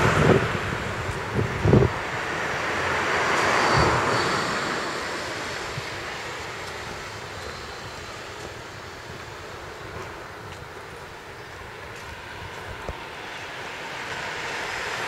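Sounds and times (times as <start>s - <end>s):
wind thumps on microphone: 0.0s - 2.3s
vehicle passing: 0.0s - 9.8s.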